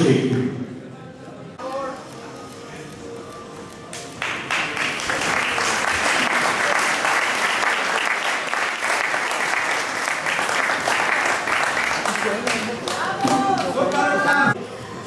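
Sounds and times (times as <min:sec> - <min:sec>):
audience applauding: 0:03.9 - 0:14.6.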